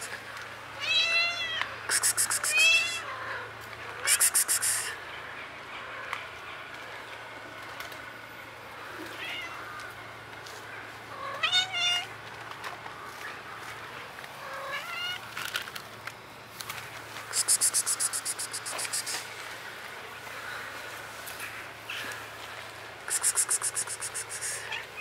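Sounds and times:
fast high-pitched rattle: 17.3 - 19.2, 23.1 - 24.6.

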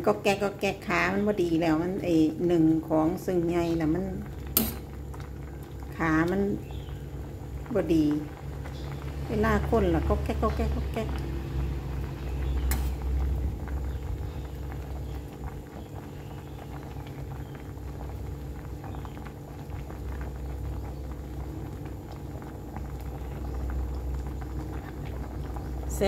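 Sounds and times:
curry bubbling at a boil: 0.0 - 26.0.

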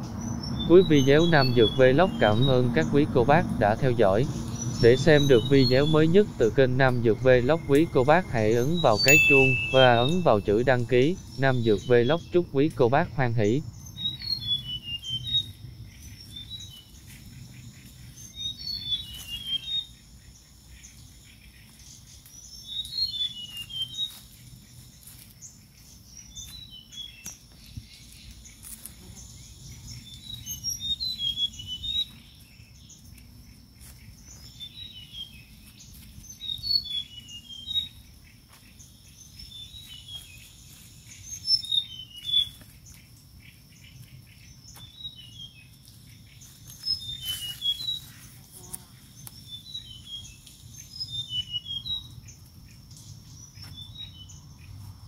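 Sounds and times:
bird chirping: 0.0 - 24.2, 34.0 - 48.2, 49.1 - 54.8
rustling of dry leaves: 13.8 - 51.4.

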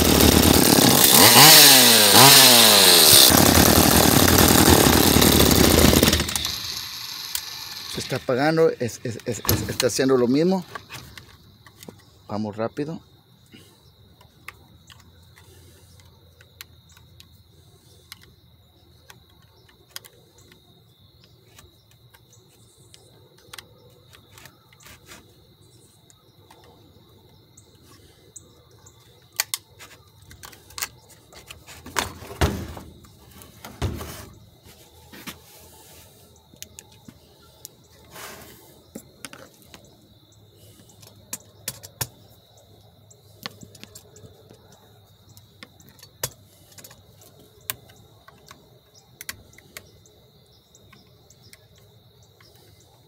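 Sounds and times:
clicks and knocks of tools and parts: 10.6 - 12.1, 19.0 - 20.6, 21.2 - 25.2, 29.0 - 34.4, 40.8 - 42.3, 43.4 - 49.9.

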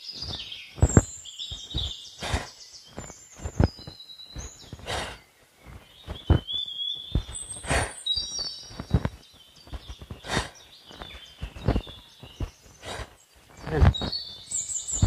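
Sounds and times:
birds chirping: 0.0 - 15.0
swishes of movement: 0.1 - 3.7, 4.6 - 6.4, 7.1 - 8.0, 8.6 - 10.6, 11.4 - 14.1.

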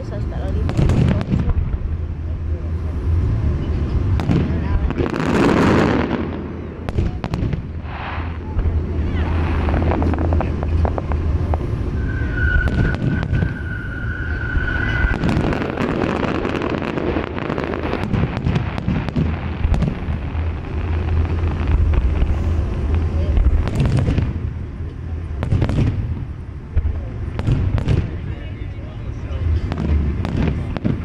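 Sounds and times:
fireworks bangs and crackles: 0.0 - 31.0
low rumble: 0.0 - 31.0
steady firework whistle: 5.0 - 24.4.

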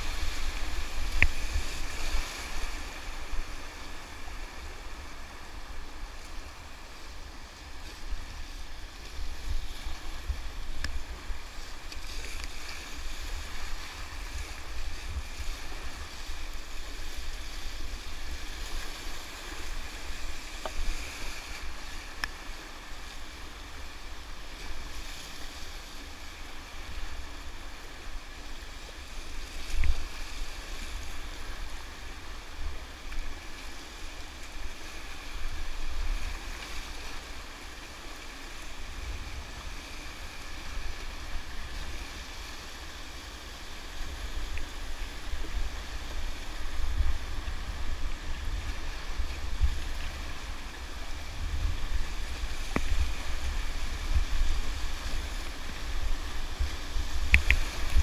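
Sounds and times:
rushing whitewater: 0.0 - 58.0
wind buffeting microphone: 45.3 - 58.0.

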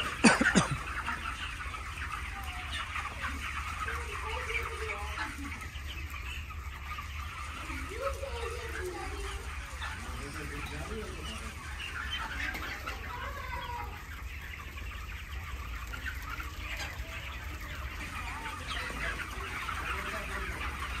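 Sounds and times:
chicks peeping and chirping: 0.0 - 21.0.

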